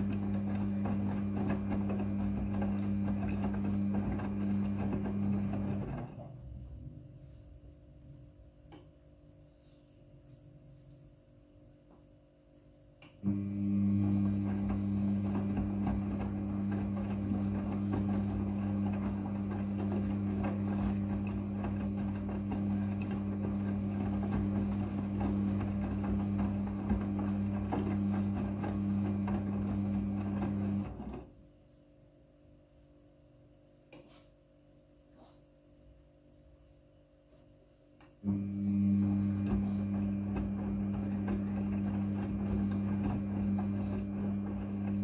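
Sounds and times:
washing machine motor hum: 0.0s - 9.5s, 13.2s - 31.6s, 38.2s - 45.0s.

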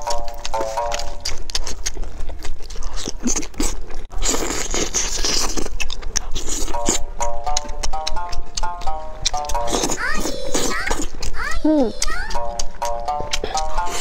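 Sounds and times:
fried meat being torn and bitten: 0.0s - 11.4s, 12.0s - 14.0s
sticky chewing and crunching: 0.0s - 14.0s
background music: 6.7s - 10.2s, 11.7s - 14.0s.

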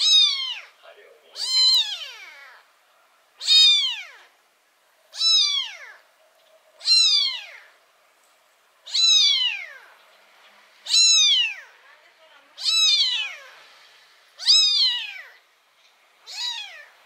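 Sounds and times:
kitten meowing: 0.0s - 2.7s, 3.4s - 4.4s, 5.1s - 6.1s, 6.8s - 7.8s, 8.8s - 10.0s, 10.8s - 11.8s, 12.5s - 13.6s, 14.4s - 15.4s, 16.2s - 17.0s.

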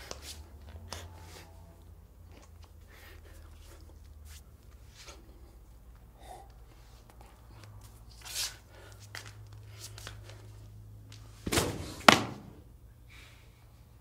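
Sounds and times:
body thudding on floor: 11.4s - 12.6s
sharp smack of body landing: 11.4s - 12.6s.

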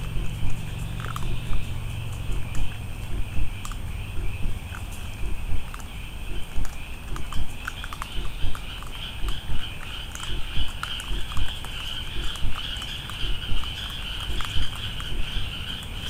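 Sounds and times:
dull low thumps: 0.0s - 7.6s, 13.2s - 13.6s
faint clicks: 0.0s - 16.0s
night insects trilling: 0.0s - 16.0s.

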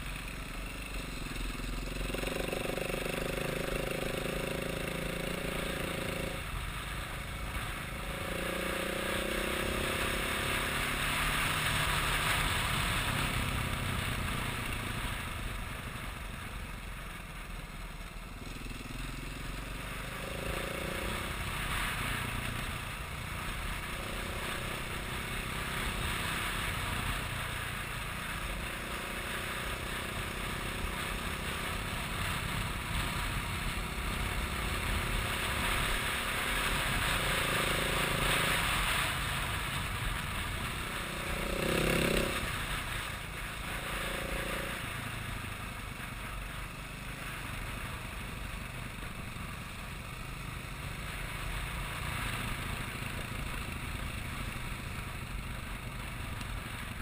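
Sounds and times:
rushing road noise: 0.0s - 57.0s
vehicle engine revving: 41.0s - 42.8s.

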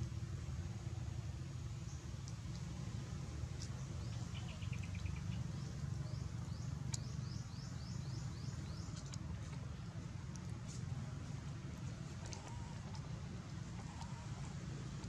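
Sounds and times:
bird chirping: 3.7s - 9.2s.

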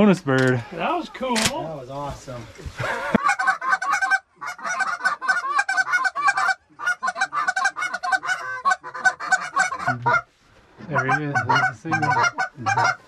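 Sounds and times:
geese honking: 3.2s - 13.0s.

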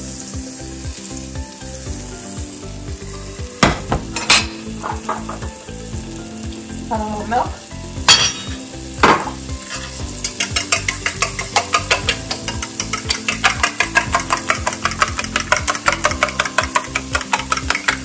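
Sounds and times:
butter sizzling in pan: 0.0s - 18.0s
knock: 3.6s - 4.2s, 9.0s - 9.4s
fork whisking in metal bowl: 9.6s - 18.0s.

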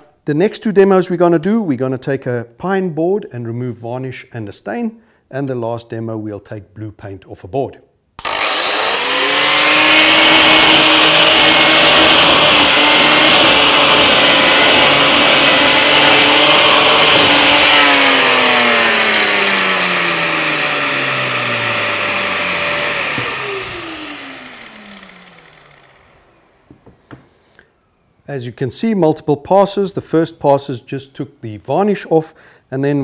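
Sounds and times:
dust extractor drawing air: 8.2s - 26.4s
electric paint remover whining: 8.2s - 27.2s.

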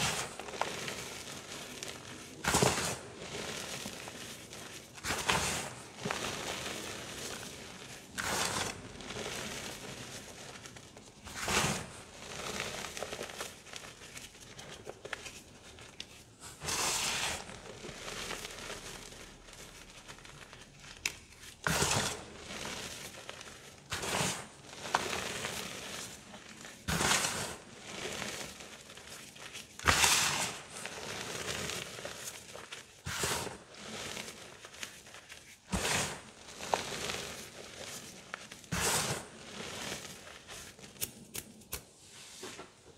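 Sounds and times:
hands crumbling chalk: 0.0s - 41.9s.

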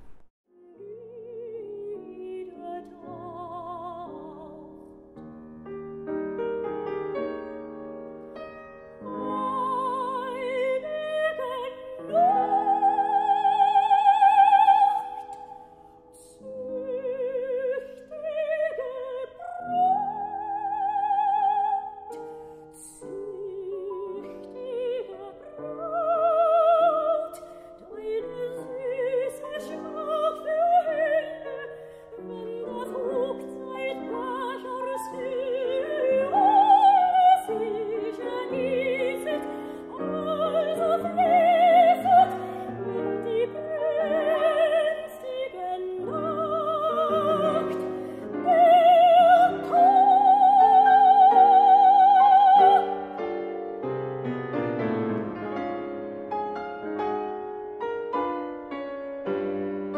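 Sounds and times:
piano accompaniment: 0.0s - 59.9s
operatic singing with vibrato: 22.8s - 53.3s.

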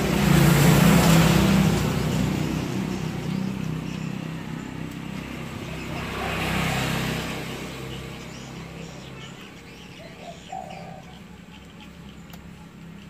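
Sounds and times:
outboard engine running: 0.0s - 9.8s.

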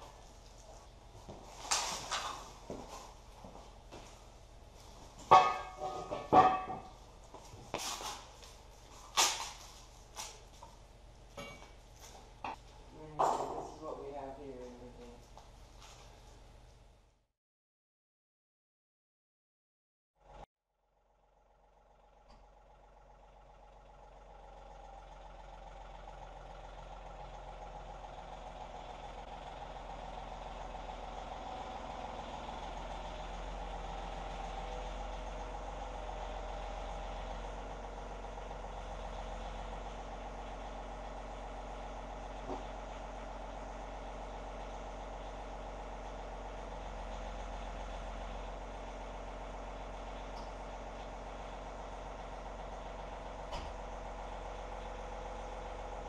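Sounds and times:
tractor diesel engine: 0.0s - 16.8s, 20.2s - 56.0s.

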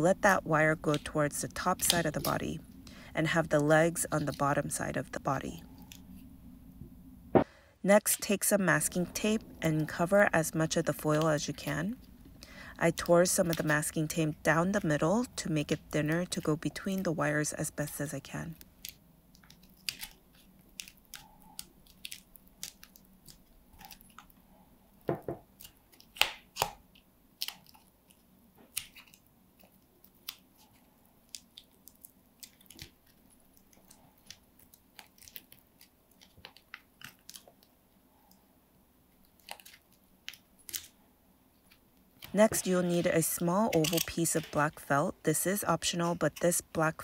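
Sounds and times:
tape and foil crinkling: 18.0s - 24.4s, 25.5s - 37.8s, 39.1s - 41.0s.

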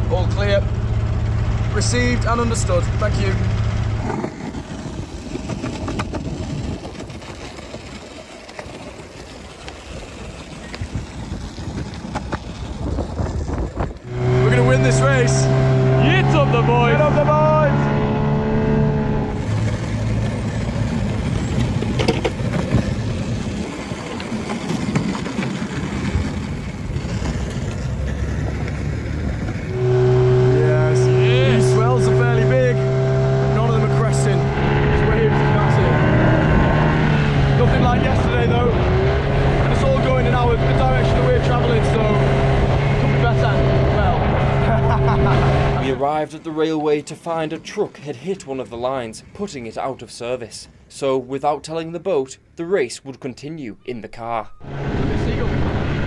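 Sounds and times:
longboard wheels rolling on concrete: 0.0s - 15.4s, 19.3s - 50.2s
wheels clicking over cracks: 3.4s - 14.1s, 19.5s - 29.7s.

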